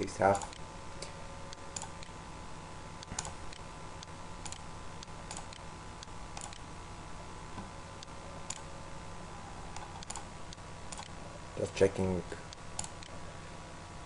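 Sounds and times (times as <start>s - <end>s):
faint hum: 0.0s - 14.0s
computer mouse clicks: 0.4s - 2.2s, 3.0s - 6.7s, 8.0s - 8.7s, 9.8s - 11.2s, 12.5s - 13.2s.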